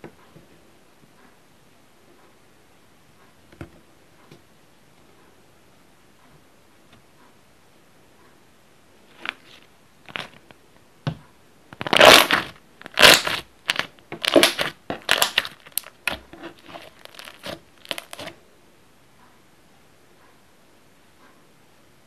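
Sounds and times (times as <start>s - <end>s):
slime squishing: 9.1s - 10.4s, 11.8s - 18.4s.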